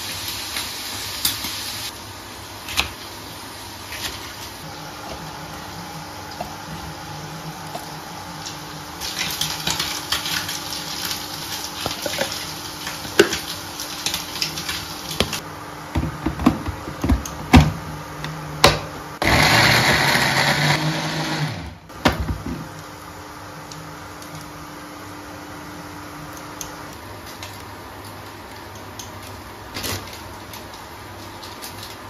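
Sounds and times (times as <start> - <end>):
blender grinding: 19.2 - 21.9.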